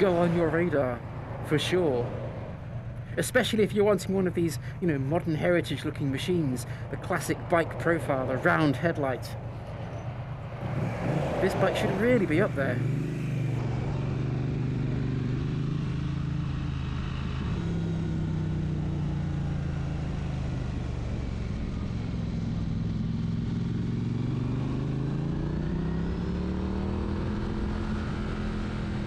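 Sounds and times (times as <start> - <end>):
motorcycle engine running: 9.4 - 29.0.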